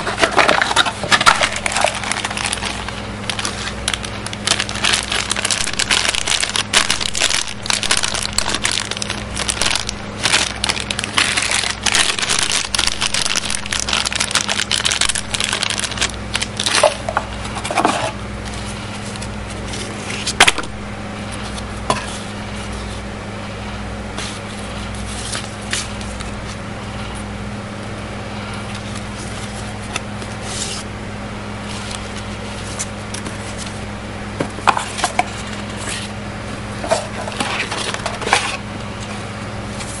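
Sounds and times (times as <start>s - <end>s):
paper rustling: 0.0s - 20.5s, 24.2s - 26.6s, 28.7s - 30.9s, 31.6s - 33.8s
plastic bag crinkling: 0.0s - 20.6s
steady low hum: 0.0s - 40.0s.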